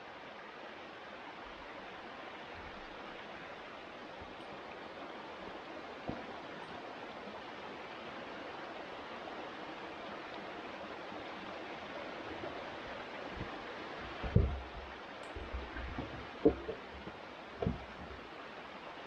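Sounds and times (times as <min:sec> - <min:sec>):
creek running over rocks: 0:00.0 - 0:19.0
thump: 0:14.2 - 0:14.7, 0:17.6 - 0:17.9.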